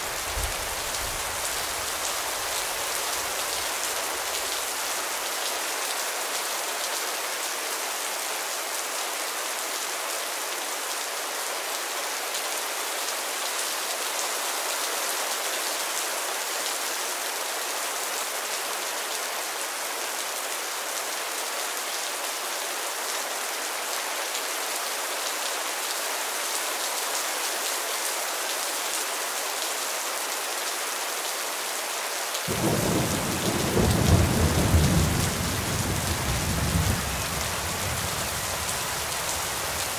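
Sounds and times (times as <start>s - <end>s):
heavy rain on leafy trees: 0.0s - 39.9s
deep rumble of thunder: 32.5s - 38.7s.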